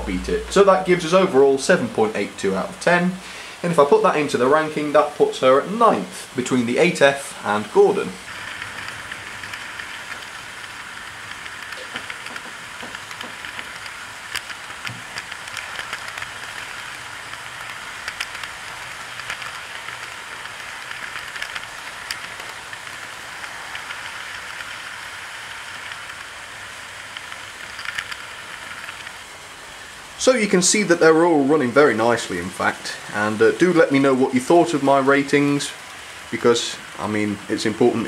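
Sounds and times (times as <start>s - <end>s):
model train whirring rumble: 0.0s - 38.0s
wheels clicking over rail joints: 4.3s - 30.3s.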